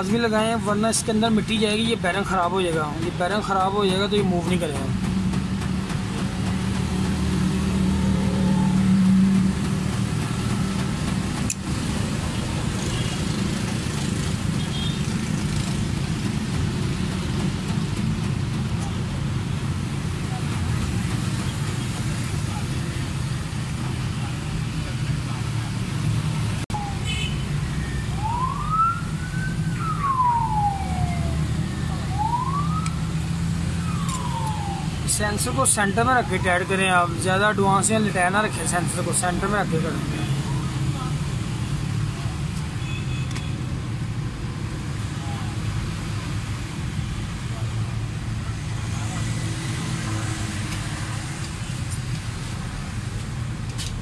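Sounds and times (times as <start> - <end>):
vehicle engine humming: 0.0 - 54.0
siren wailing: 7.6 - 9.4, 26.7 - 38.9.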